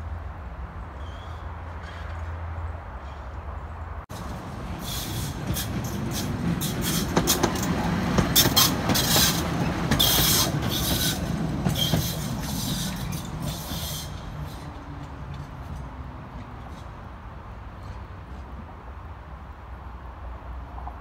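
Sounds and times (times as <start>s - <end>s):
tram passing with low rumble: 0.0s - 21.0s
wheel clacks over rails: 5.1s - 13.4s.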